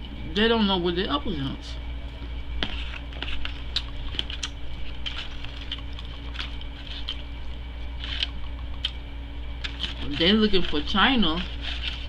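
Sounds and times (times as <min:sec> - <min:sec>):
aluminium foil crinkling: 0:02.9 - 0:08.5, 0:09.6 - 0:12.0.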